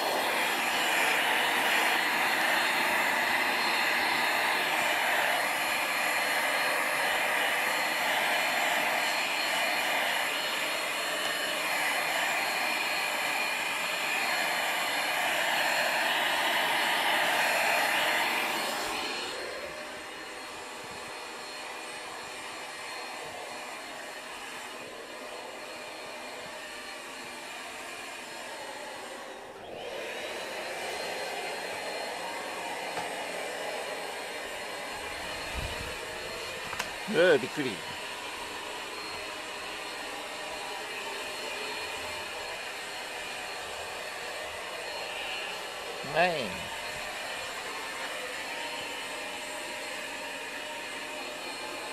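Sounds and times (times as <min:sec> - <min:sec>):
handheld vacuum cleaner running: 0:00.0 - 0:51.9.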